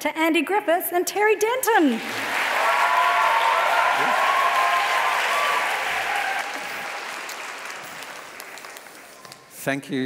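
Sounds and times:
audience applauding: 0:01.9 - 0:09.5
children cheering: 0:02.1 - 0:08.3.

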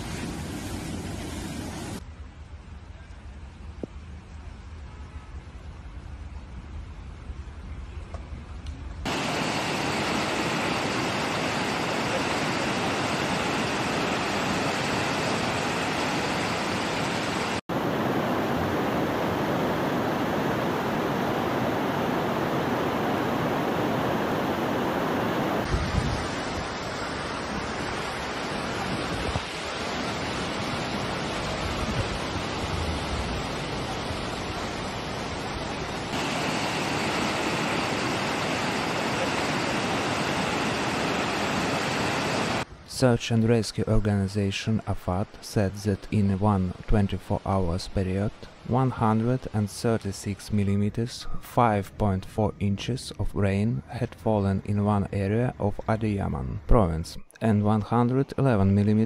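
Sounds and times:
floodwater rushing: 0:09.1 - 0:42.7.

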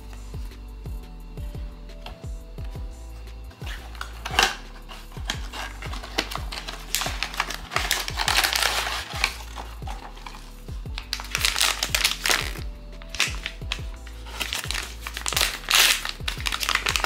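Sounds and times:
background music with a beat: 0:00.0 - 0:17.0
packaging crinkling and crackling: 0:03.6 - 0:17.0.

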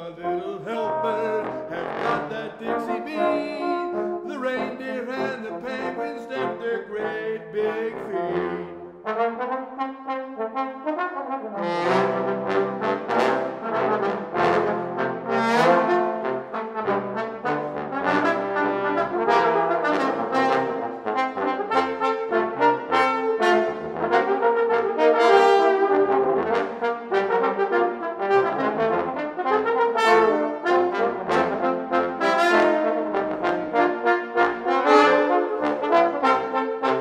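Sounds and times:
trombone quartet playing: 0:00.0 - 0:37.0.

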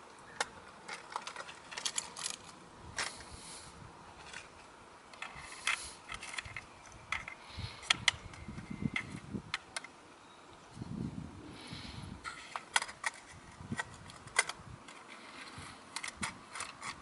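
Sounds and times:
small plastic clicks and ratcheting: 0:00.4 - 0:03.2, 0:05.1 - 0:09.9, 0:12.2 - 0:17.0.

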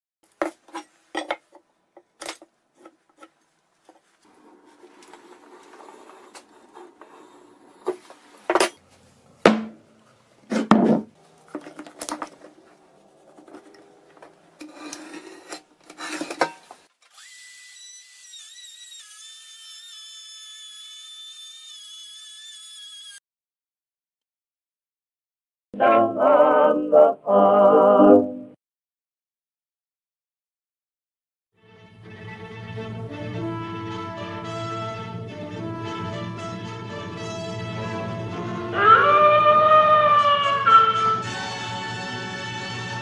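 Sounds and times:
metal knocking on wood: 0:09.5 - 0:09.8
scribing scratching on steel: 0:14.6 - 0:16.6.

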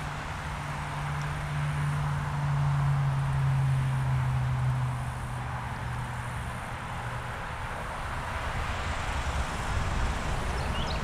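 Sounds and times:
small bird chirping: 0:10.5 - 0:11.0.

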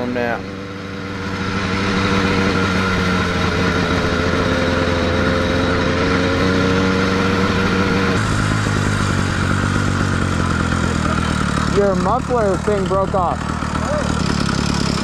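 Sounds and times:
motorized bicycle engine running: 0:08.2 - 0:15.0.

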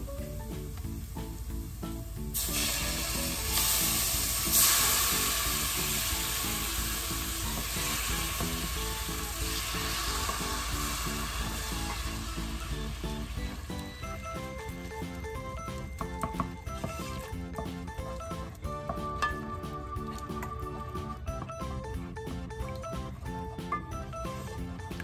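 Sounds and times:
liquid sizzling in a hot pot: 0:00.0 - 0:17.4
background music with a beat: 0:00.0 - 0:25.0.

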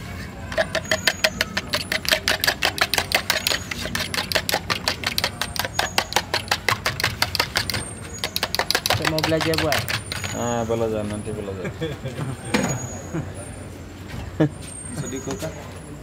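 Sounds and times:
fork beating egg in jug: 0:00.6 - 0:10.5.

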